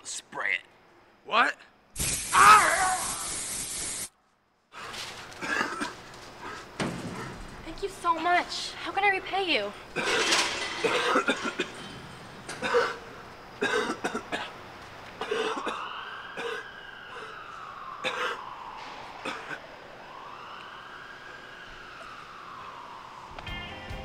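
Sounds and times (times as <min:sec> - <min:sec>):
man coughing: 0:05.4 - 0:06.0, 0:10.0 - 0:11.8, 0:12.5 - 0:14.6, 0:15.2 - 0:16.7, 0:18.0 - 0:18.4, 0:19.2 - 0:19.6
siren wailing: 0:15.4 - 0:24.0.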